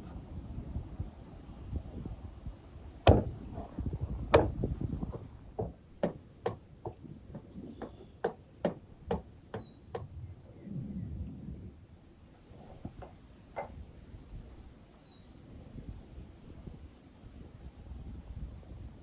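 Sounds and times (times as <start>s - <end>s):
cleaver chopping ribs on board: 3.1s - 3.3s, 4.3s - 4.7s.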